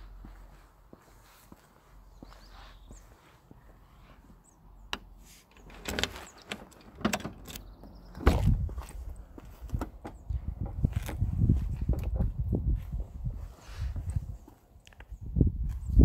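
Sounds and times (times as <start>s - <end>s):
sharp clicks and knocks: 4.9s - 8.5s.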